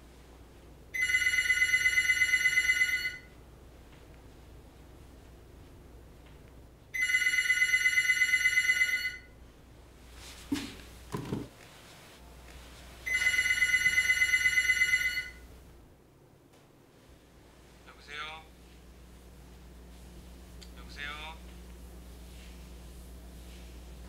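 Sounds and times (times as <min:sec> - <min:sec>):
telephone ringing: 0:00.9 - 0:03.4, 0:06.9 - 0:09.4, 0:13.0 - 0:15.5
soft knocks: 0:10.5 - 0:11.6.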